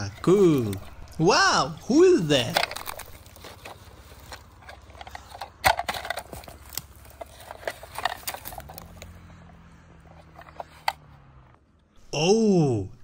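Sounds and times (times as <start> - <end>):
toy cars clicking on rocks: 0.0 - 1.3, 2.4 - 9.2, 10.1 - 11.0
low steady hum: 0.0 - 13.0.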